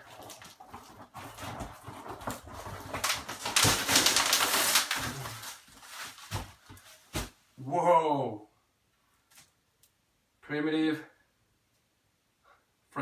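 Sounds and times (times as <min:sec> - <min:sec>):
plastic wrapping crinkling: 0:00.0 - 0:07.4
cardboard rustling and scraping: 0:00.0 - 0:07.5.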